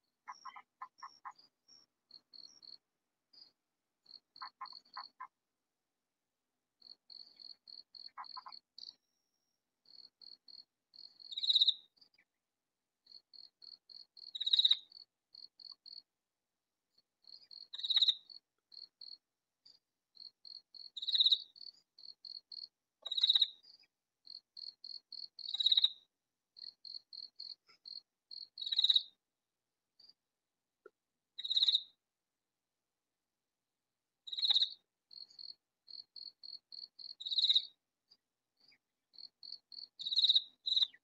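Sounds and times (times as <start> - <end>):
katydid ticking: 0.2 - 5.3, 6.8 - 8.9, 9.8 - 11.9, 13.1 - 16.1, 17.2 - 19.2, 20.2 - 23.6, 24.2 - 26.0, 26.6 - 29.1, 34.3 - 37.7, 39.1 - 41.0.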